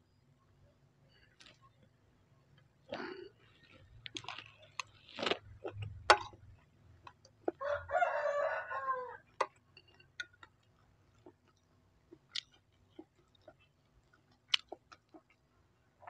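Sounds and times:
rooster crowing: 7.6s - 9.3s.

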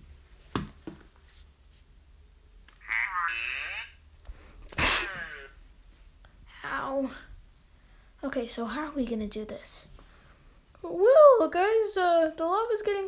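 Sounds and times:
person crying out wordlessly: 4.8s - 5.6s.

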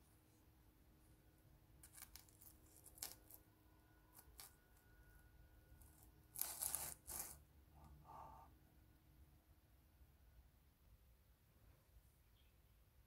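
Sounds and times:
scratchy rustle: 5.8s - 7.4s.

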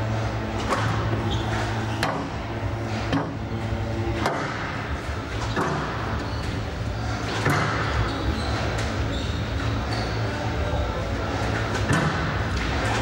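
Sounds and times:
steady low hum: 0.0s - 13.0s
ball hitting court walls: 4.2s - 6.3s, 7.3s - 8.1s, 11.7s - 13.0s.

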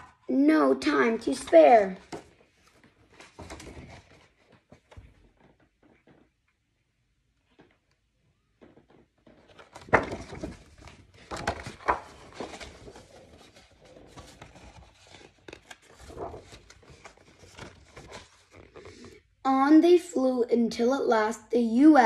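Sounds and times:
book pages rustling: 1.0s - 6.4s, 8.7s - 19.3s.

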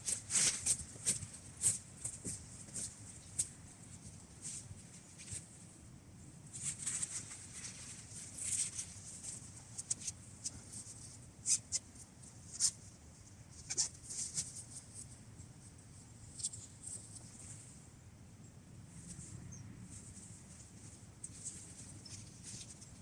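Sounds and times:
tent fabric rustling and crinkling: 0.0s - 5.6s, 6.5s - 11.6s.

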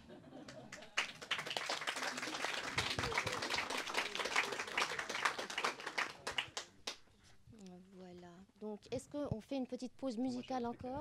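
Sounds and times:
people clapping: 0.4s - 7.0s.

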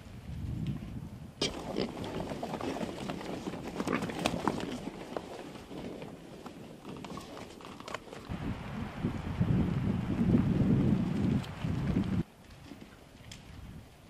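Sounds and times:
hoof steps on forest ground: 1.5s - 8.4s.

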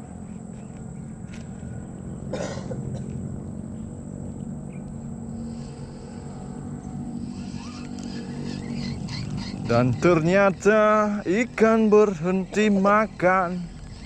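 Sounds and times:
steady low hum: 0.0s - 14.0s
person coughing: 2.3s - 2.8s.

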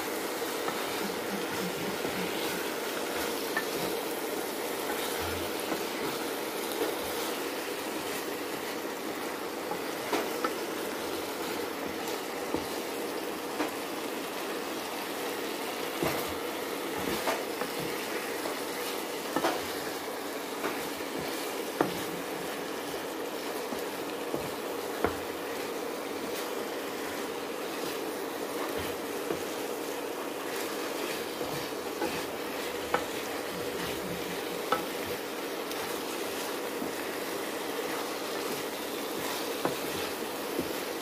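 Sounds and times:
curry sizzling in a frying pan: 0.0s - 41.0s.

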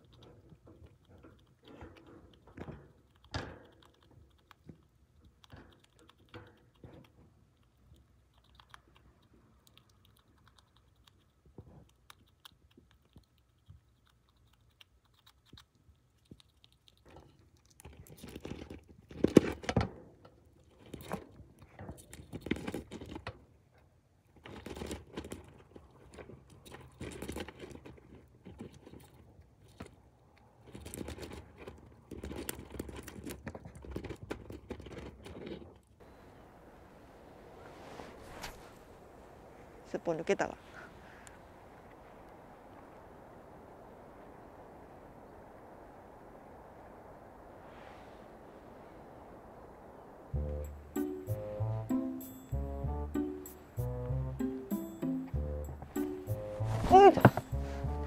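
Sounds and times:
chipmunk gnawing and crunching food: 0.0s - 36.5s.

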